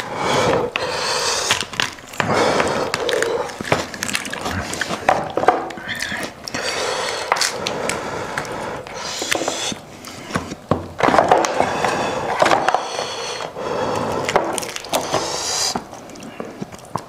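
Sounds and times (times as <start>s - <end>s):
bone cracking and clicking: 0.7s - 10.6s, 11.4s - 17.0s
meat and skin tearing: 1.3s - 10.2s, 14.1s - 16.9s.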